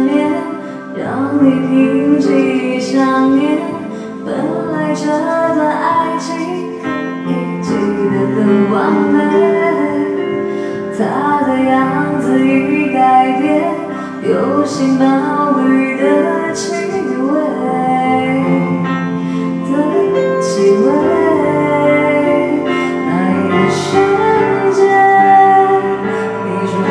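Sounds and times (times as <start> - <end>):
instrumental backing music: 0.0 - 26.9
woman singing into a microphone: 0.0 - 26.9.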